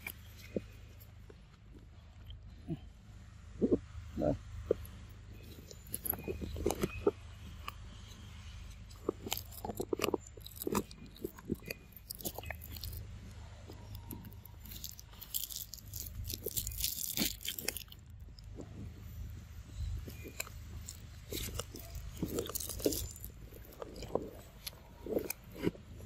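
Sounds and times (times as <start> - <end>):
monkey rustling in dry leaves: 13.8 - 17.9.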